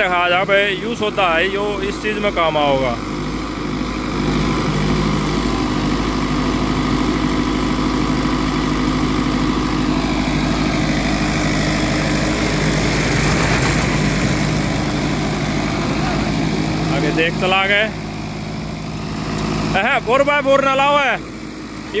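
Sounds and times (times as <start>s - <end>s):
tractor diesel engine straining: 0.0s - 22.0s
rough noise: 12.0s - 17.9s.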